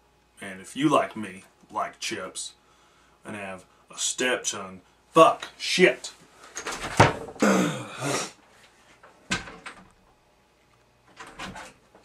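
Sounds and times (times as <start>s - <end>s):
heavy breathing: 2.6s - 3.9s, 7.4s - 8.4s
man groaning: 7.4s - 8.4s.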